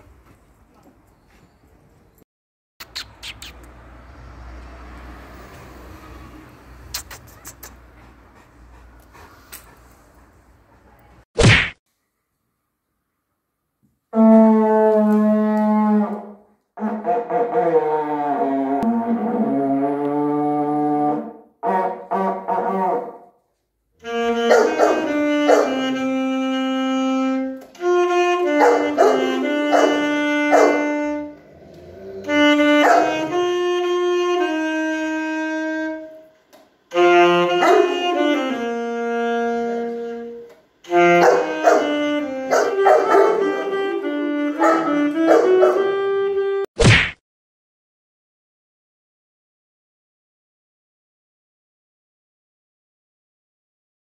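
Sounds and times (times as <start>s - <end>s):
alto saxophone playing: 14.1s - 23.1s, 24.0s - 46.7s
plastic horn blasts: 24.0s - 31.4s, 32.3s - 36.2s, 36.9s - 46.6s.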